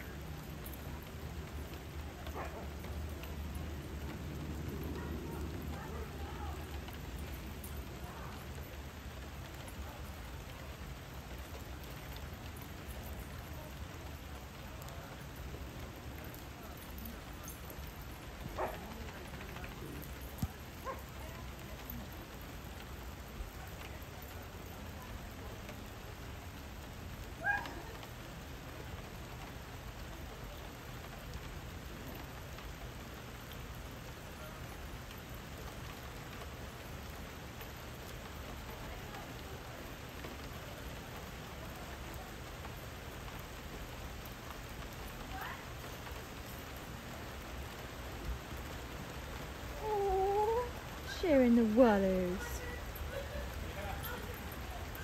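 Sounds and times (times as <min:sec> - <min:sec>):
steady rain falling: 0:00.0 - 0:55.0
dogs yipping: 0:18.4 - 0:19.0, 0:27.4 - 0:28.1.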